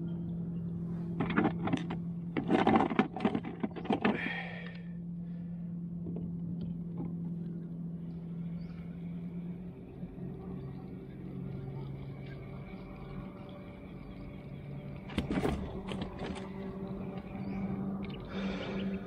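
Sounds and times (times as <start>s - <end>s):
low motor hum: 0.0s - 19.0s
gear clattering and rattling: 1.2s - 4.2s, 15.1s - 17.2s.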